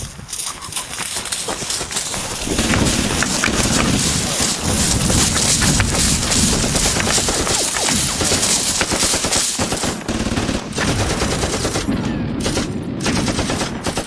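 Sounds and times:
machine-gun fire: 1.7 - 14.0.

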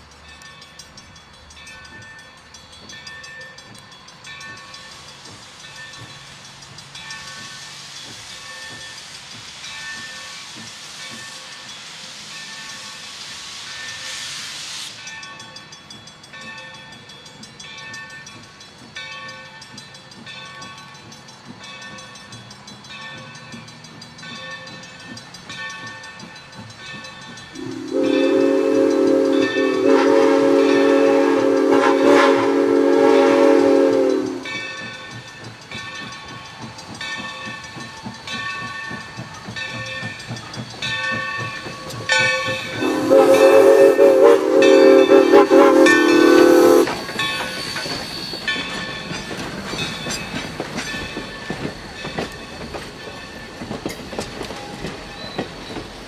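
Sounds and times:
crossing bell ringing: 0.0 - 10.4, 14.9 - 56.0
steam locomotive whistle: 27.5 - 34.7, 41.8 - 48.3.

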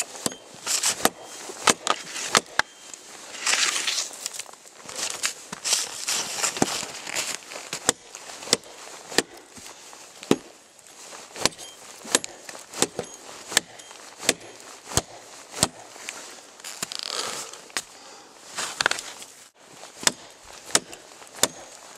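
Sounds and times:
rustle of snow and branches: 0.0 - 21.9
tomahawk chopping into a log: 0.2 - 2.6, 10.2 - 10.5, 11.4 - 15.8, 20.0 - 21.8.

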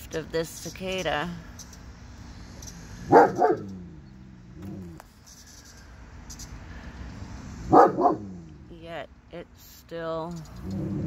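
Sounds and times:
dog barking: 3.1 - 3.8, 7.7 - 8.3.

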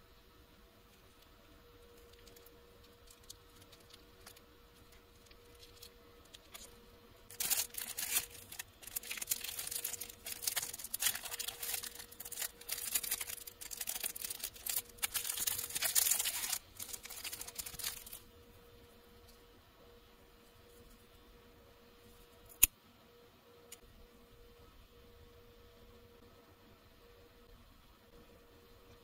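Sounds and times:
plastic wrapper crinkling and tearing: 1.9 - 18.2.

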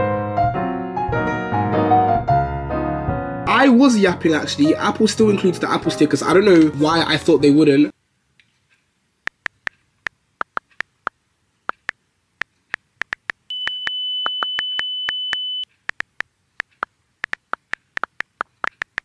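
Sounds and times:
touchscreen keyboard clicking: 12.7 - 19.0
steady high beep: 13.5 - 15.7.

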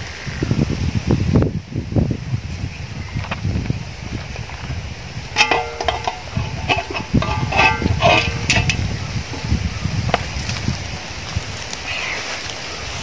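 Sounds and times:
wind rumble on microphone: 0.0 - 13.0
knife knocking on metal pot: 5.4 - 8.8.

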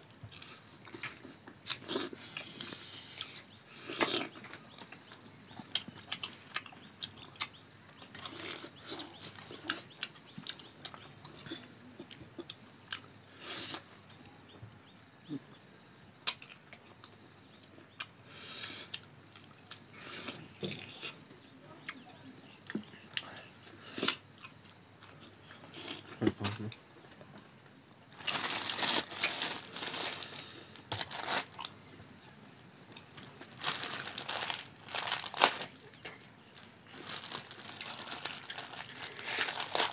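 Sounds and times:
plastic packaging crinkling: 28.1 - 31.6, 33.4 - 35.8, 36.6 - 39.9
crisp bites and chewing: 28.1 - 31.8, 33.0 - 39.9.

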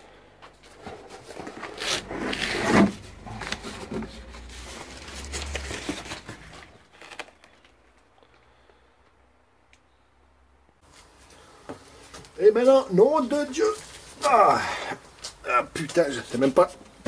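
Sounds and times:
cardboard box rubbing and scraping: 0.7 - 6.8.

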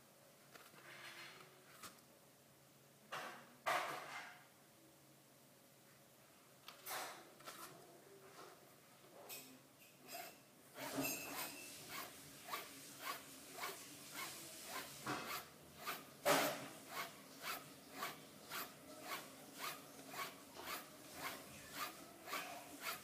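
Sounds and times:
razor swishing on leather strop: 10.8 - 23.0.

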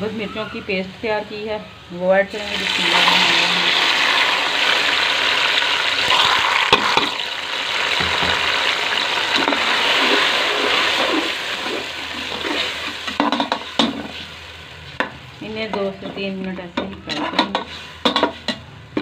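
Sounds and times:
paste sizzling in hot oil: 2.3 - 15.4.

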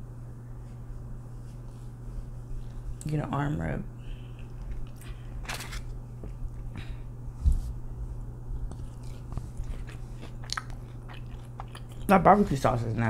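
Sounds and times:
steady low hum: 0.0 - 13.0
crunching fries: 8.6 - 12.2.

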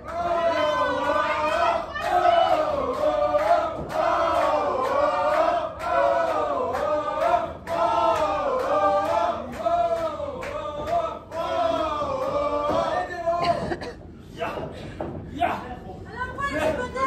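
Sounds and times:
crowd chanting in unison: 0.0 - 13.1.

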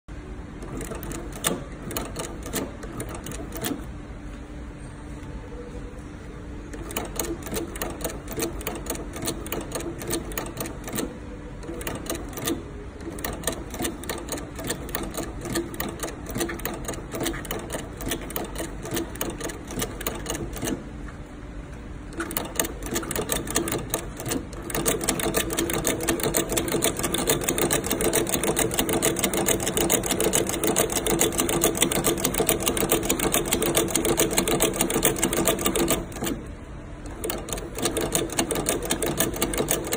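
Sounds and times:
stitching machine clattering: 0.6 - 3.9, 6.7 - 20.8, 22.1 - 39.9.

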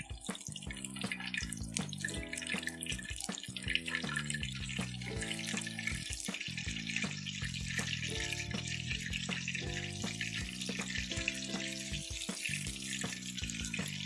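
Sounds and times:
background music of held notes: 0.0 - 14.0
fish deep-frying in hot oil: 0.0 - 14.0.

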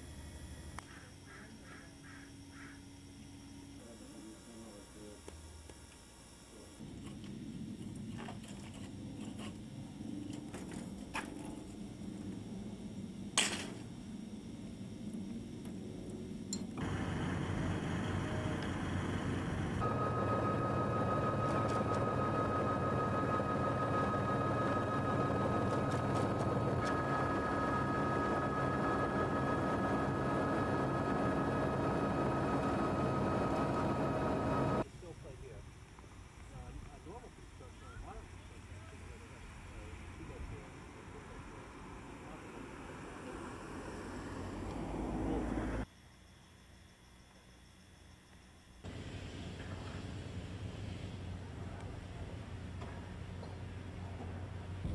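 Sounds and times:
steady high whine: 0.0 - 54.9
steady low hum: 0.0 - 54.9
helicopter engine and rotors: 6.5 - 35.4, 48.9 - 54.9.

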